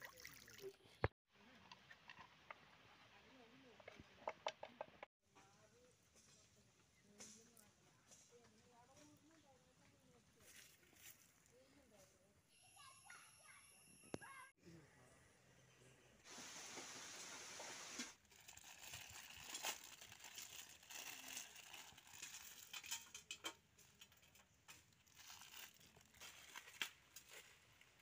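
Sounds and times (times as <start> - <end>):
steady hiss: 16.3 - 18.2
plastic wrappers crinkling: 18.2 - 23.2, 24.8 - 27.3.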